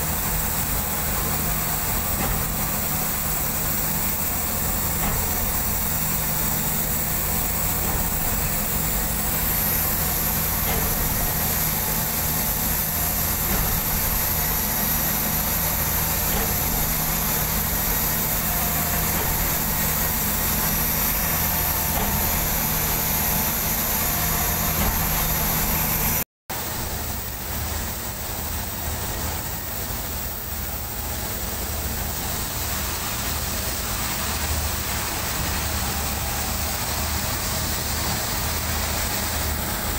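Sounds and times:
heavy diesel engine running: 0.0 - 39.9.

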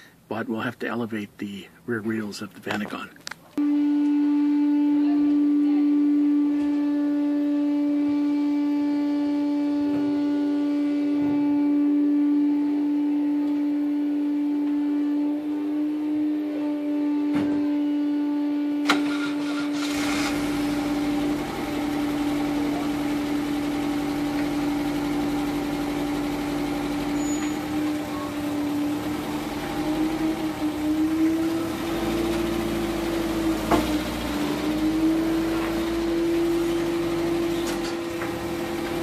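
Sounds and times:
steady hum: 3.5 - 18.9, 20.2 - 39.0
van engine starting and idling: 18.8 - 39.0.

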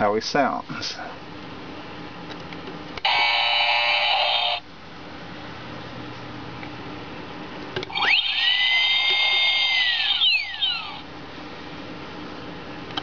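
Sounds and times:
high electronic whine: 3.0 - 4.6, 7.9 - 11.0
buzzing electronic tone: 3.1 - 4.6.

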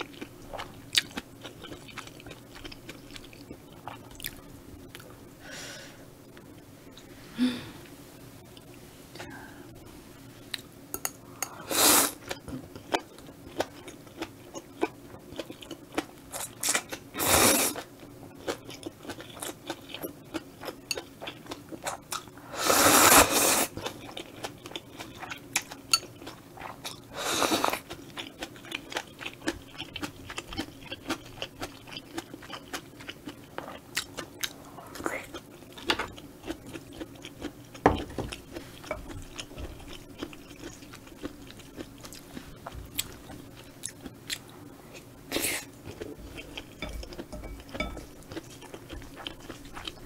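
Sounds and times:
wet chewing and mouth clicks: 27.7 - 44.5, 45.9 - 50.0.

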